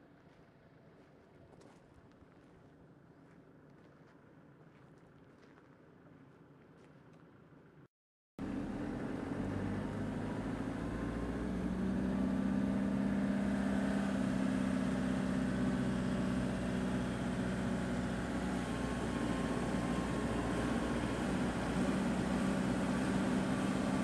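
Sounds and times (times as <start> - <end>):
vehicle engine and road noise: 8.4 - 24.0.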